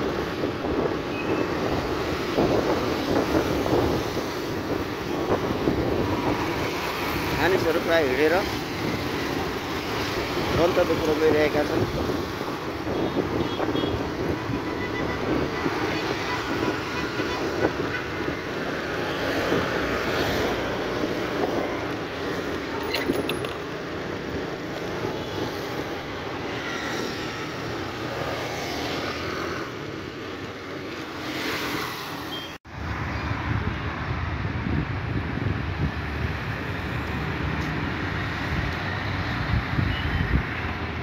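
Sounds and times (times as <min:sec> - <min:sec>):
wind buffeting microphone: 0:00.0 - 0:07.4, 0:08.4 - 0:28.2, 0:32.8 - 0:41.0
motorbike road noise: 0:00.0 - 0:41.0
passing motorbikes and cars: 0:00.0 - 0:41.0.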